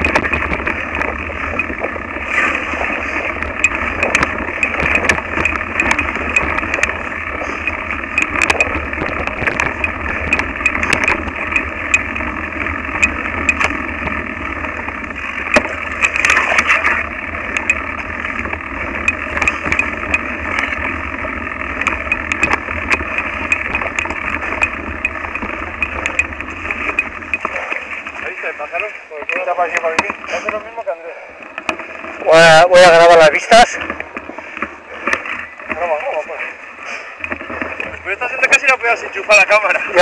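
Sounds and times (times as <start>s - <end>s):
sharp clicks and knocks: 0.0s - 30.8s, 31.4s - 32.2s
bike rattling rumble: 0.0s - 40.0s.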